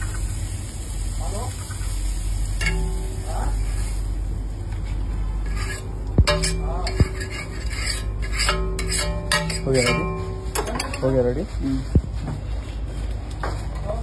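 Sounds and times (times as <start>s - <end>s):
steady low hum: 1.8s - 12.6s
metal spatula scraping griddle: 2.5s - 4.0s, 4.7s - 11.3s
metal knocks on metal: 6.2s - 7.3s.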